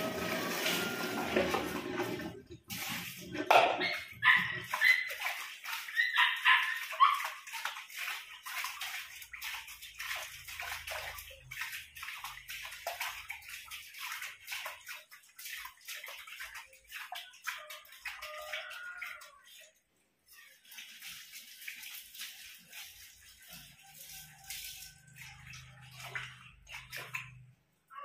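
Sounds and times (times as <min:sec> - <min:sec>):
water splashing and sloshing: 0:00.0 - 0:28.0
short high yelps: 0:05.9 - 0:07.3.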